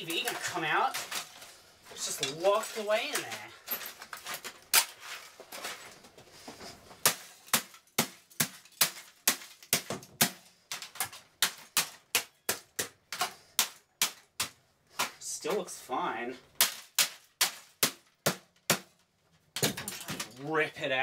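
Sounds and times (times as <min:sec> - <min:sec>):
golf club smashing plastic: 0:00.0 - 0:06.0, 0:06.9 - 0:15.2.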